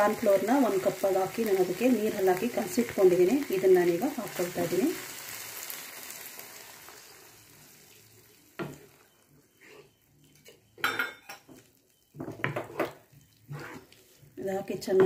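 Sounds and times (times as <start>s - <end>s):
slurry sizzling in hot pan: 0.0s - 9.7s
wooden spatula scraping pan: 12.3s - 15.0s.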